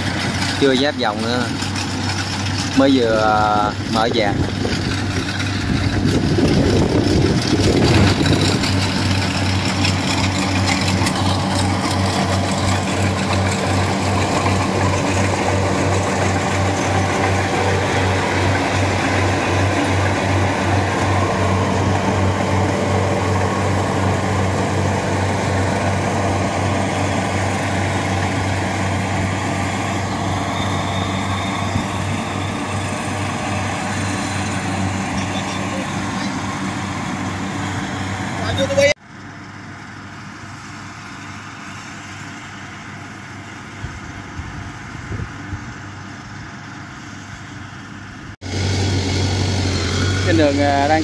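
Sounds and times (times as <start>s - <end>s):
harvester engine running: 0.0s - 51.0s
clatter of threshing mechanism: 4.0s - 18.0s.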